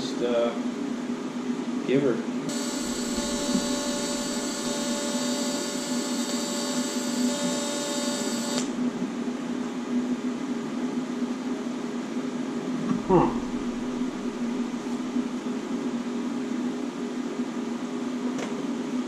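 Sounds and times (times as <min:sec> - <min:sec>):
welding arc high-pitched whine: 0:02.5 - 0:09.0, 0:13.0 - 0:15.4
low hum: 0:02.5 - 0:09.5, 0:12.7 - 0:15.9.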